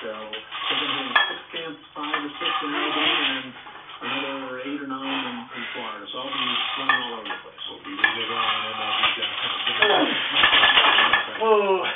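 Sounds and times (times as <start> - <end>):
barbell plates rattling and clinking: 8.0 - 11.5.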